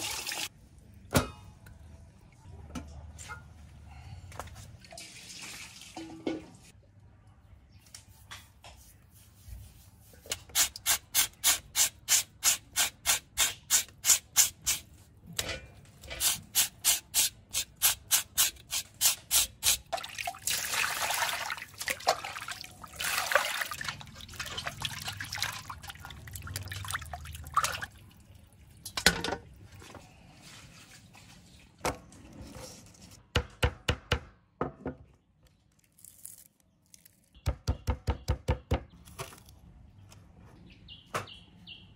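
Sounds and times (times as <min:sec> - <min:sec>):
water sounds: 0:19.9 - 0:28.8.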